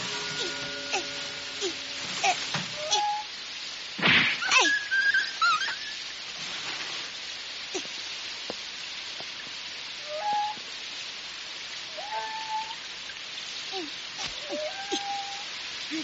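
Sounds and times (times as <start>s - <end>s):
steady rain hiss: 0.0s - 16.0s
dog whining: 14.2s - 15.5s.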